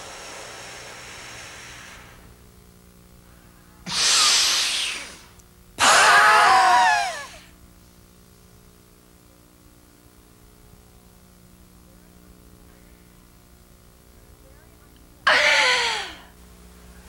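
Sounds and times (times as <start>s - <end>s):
woman breathing forcefully: 0.0s - 2.3s, 15.3s - 16.2s
woman groaning: 15.3s - 16.3s.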